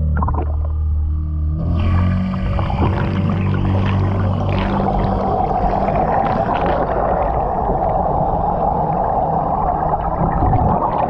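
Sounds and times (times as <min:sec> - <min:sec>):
underwater motor drone and whine: 0:00.0 - 0:11.0
water rushing: 0:02.5 - 0:11.0.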